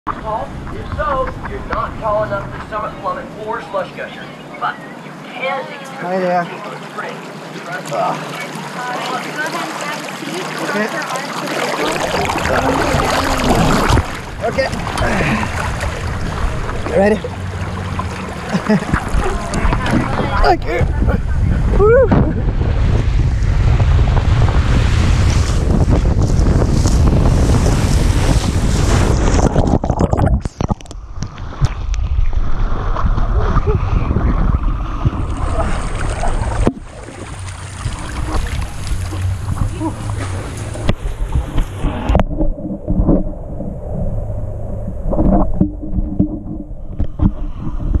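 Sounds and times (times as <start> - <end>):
water rushing down slide: 6.5 - 48.0
wind buffeting microphone: 11.8 - 48.0.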